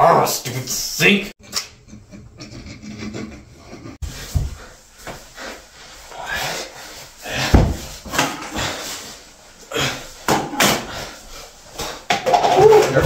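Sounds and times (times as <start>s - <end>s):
heavy thump: 7.4s - 7.9s
knocks and bumps: 7.4s - 8.4s.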